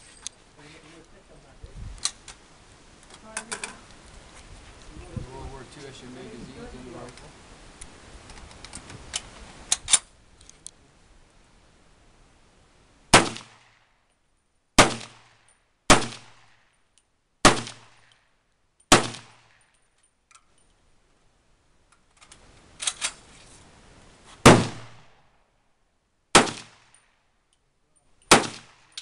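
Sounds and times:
rifle shots: 13.1 - 13.8, 14.8 - 16.6, 17.4 - 18.1, 18.9 - 19.6, 24.4 - 25.2, 26.3 - 27.0, 28.3 - 29.0.

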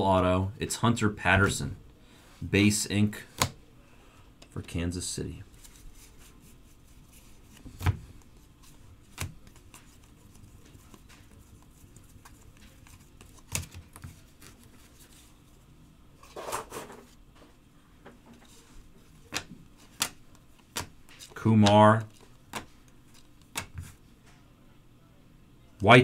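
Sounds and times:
cards rustling: 5.5 - 15.5, 18.4 - 24.0.

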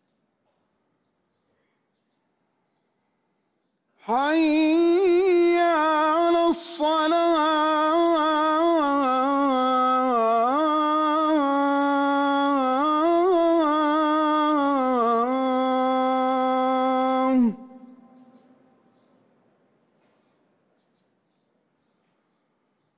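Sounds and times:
man chanting call to prayer: 4.0 - 18.7.

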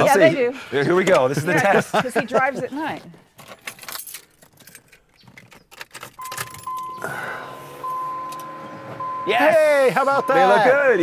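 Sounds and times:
keys jingling: 3.3 - 7.2
electronic warning chime: 6.2 - 11.0
headlight motor humming: 6.7 - 10.3.

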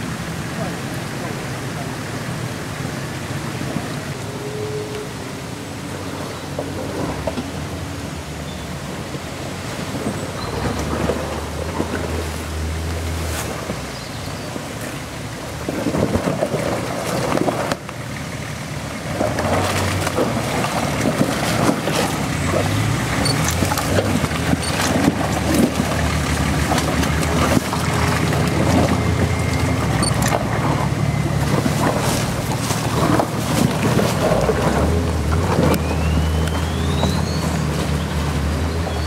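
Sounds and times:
off-road engine under load: 0.0 - 39.0
tyres crunching over stones: 19.1 - 39.0.

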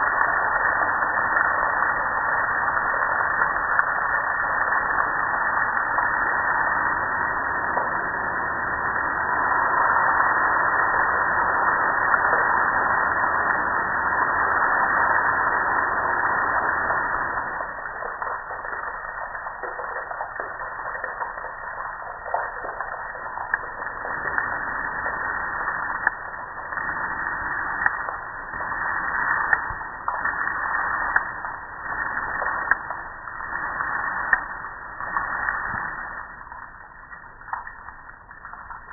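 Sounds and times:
water dripping and splashing: 0.0 - 38.9.

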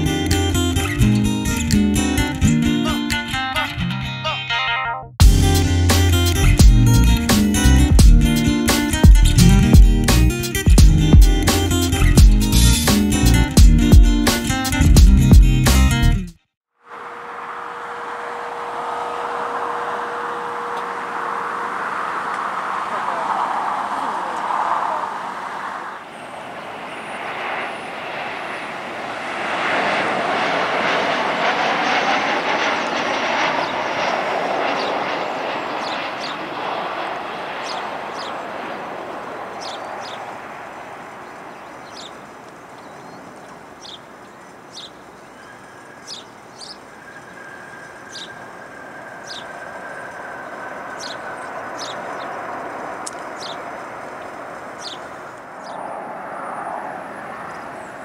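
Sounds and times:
jet engine rumble: 16.9 - 58.0.

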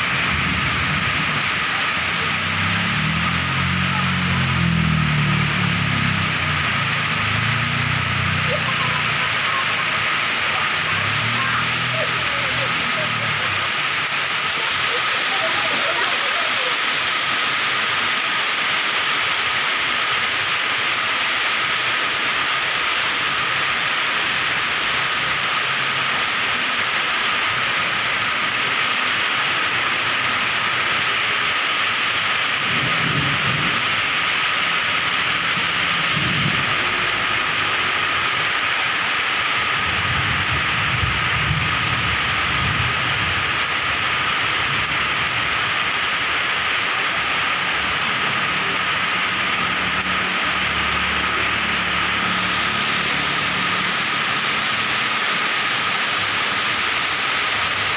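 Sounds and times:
low rumbles: 0.0 - 14.9
heavy rain: 0.0 - 57.9.

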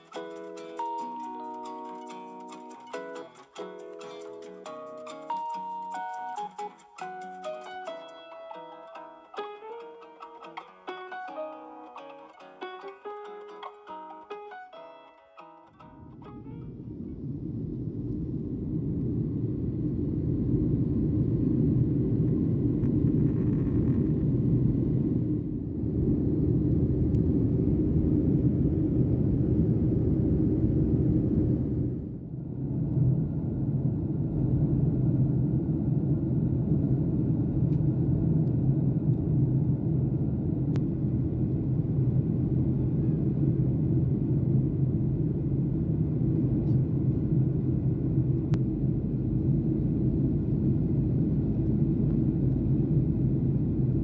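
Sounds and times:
airliner cabin rumble in flight: 16.2 - 54.0.

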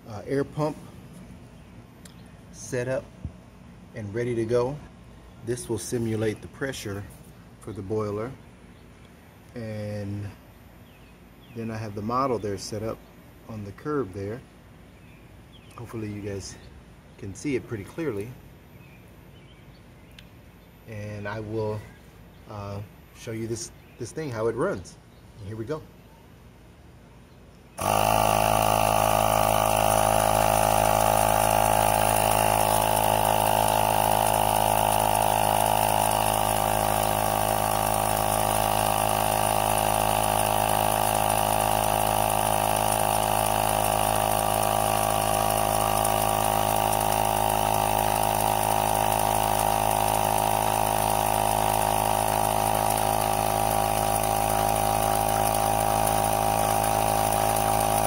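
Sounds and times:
air pump droning: 0.0 - 8.4, 27.8 - 58.0.

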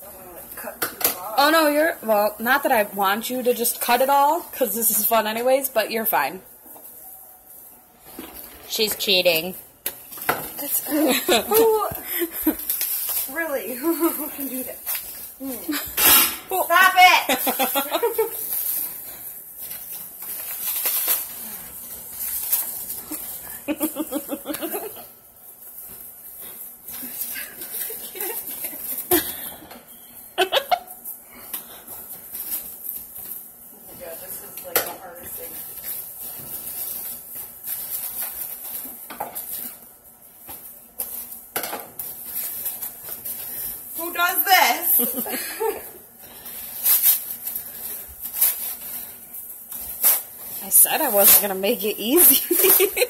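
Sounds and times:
plastic wrap crinkling and tearing: 10.0 - 15.6, 16.7 - 24.0, 35.4 - 53.0
sharp plastic crackles: 18.0 - 23.4
people laughing: 23.6 - 25.0.

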